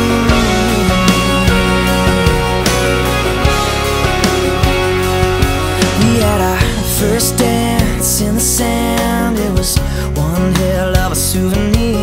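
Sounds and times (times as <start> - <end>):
guitar notes: 0.0 - 9.4
drum beat with cymbal hits: 0.0 - 12.0.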